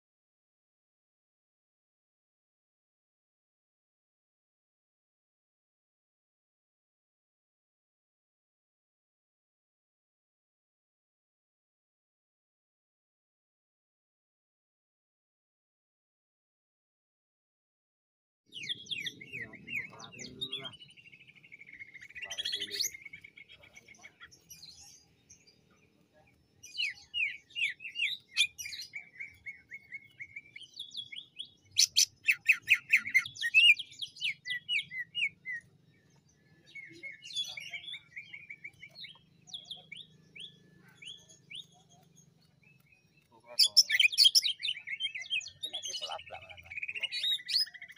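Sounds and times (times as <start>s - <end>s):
bird singing whistles and trills: 26.7s - 47.9s.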